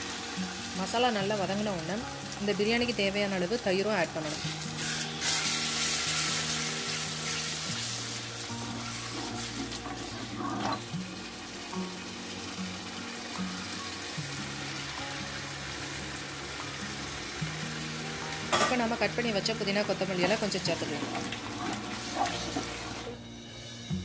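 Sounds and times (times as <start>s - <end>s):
background music low notes: 0.0s - 24.0s
food sizzling in a pot: 0.0s - 24.0s.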